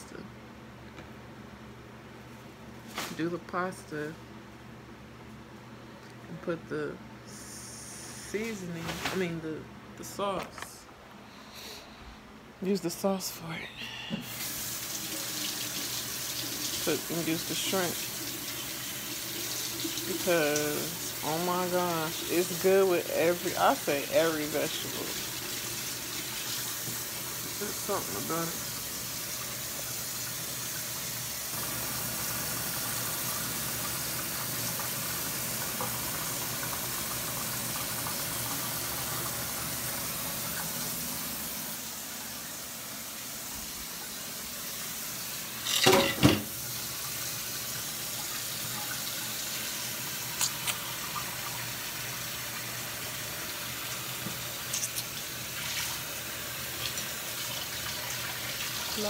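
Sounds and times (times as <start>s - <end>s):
tap water running into sink: 14.2s - 59.0s
dishes clattering: 45.6s - 46.6s.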